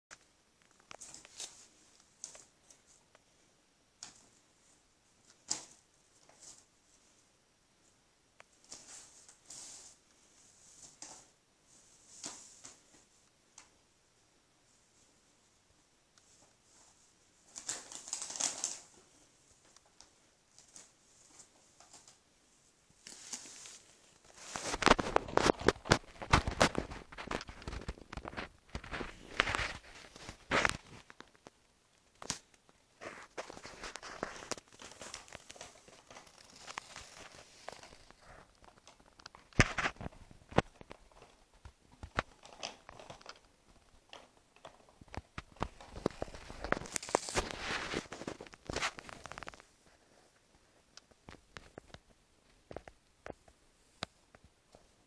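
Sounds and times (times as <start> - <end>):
paper bag crackling and rustling: 33.0 - 43.5, 44.1 - 49.7.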